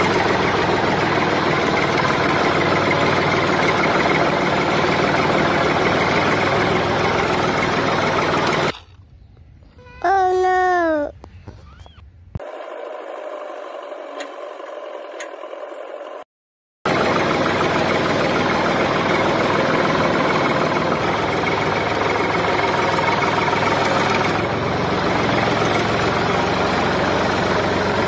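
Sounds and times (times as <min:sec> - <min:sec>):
engine idling: 0:00.0 - 0:09.1, 0:16.9 - 0:28.0.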